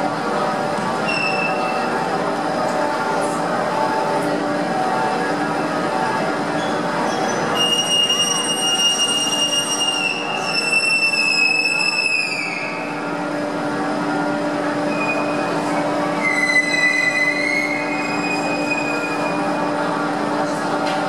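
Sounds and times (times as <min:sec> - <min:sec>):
steady hum: 0:11.6 - 0:21.0.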